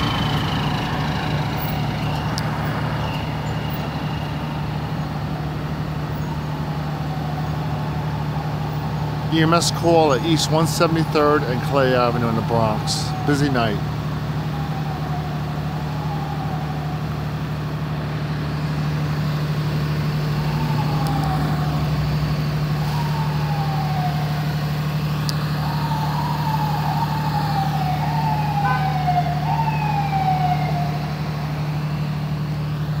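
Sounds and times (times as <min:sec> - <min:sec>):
idling vehicles drone: 0:00.0 - 0:33.0
siren wails: 0:00.0 - 0:33.0.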